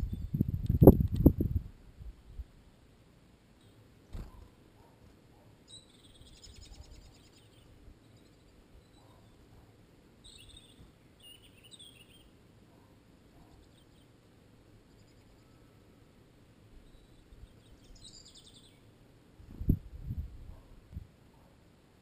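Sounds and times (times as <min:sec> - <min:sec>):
songbirds chirping and trilling: 0:02.1 - 0:19.7.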